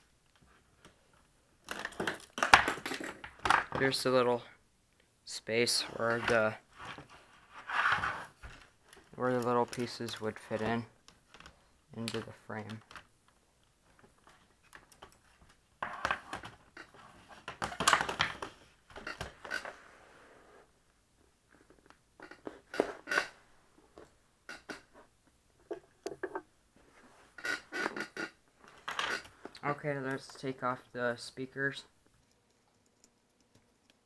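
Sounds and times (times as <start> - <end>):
scraping and rustling on desk: 5.8 - 8.7.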